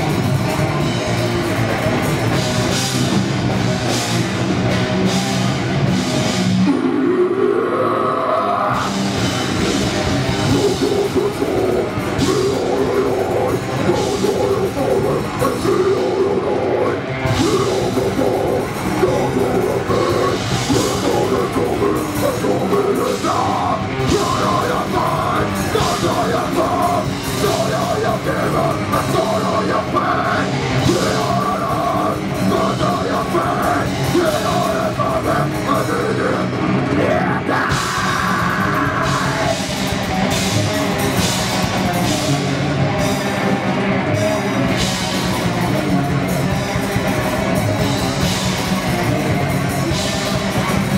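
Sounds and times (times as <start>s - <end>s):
distorted electric guitars: 0.0s - 50.9s
drum kit: 0.0s - 50.9s
person singing into microphone: 10.4s - 39.6s.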